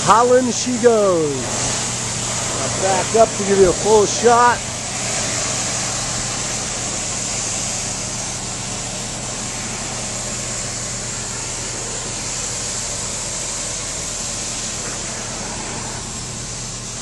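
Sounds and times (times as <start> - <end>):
pressure washer hiss: 0.0 - 17.0
pressure washer motor hum: 0.0 - 17.0.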